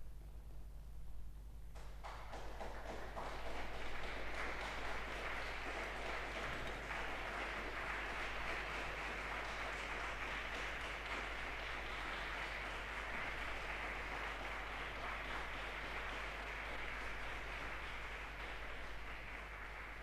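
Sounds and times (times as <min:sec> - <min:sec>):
audience applause: 0:01.9 - 0:20.0.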